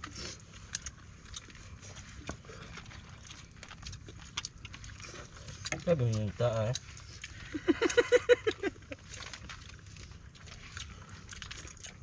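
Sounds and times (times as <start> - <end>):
people eating with their hands: 0.0 - 12.0.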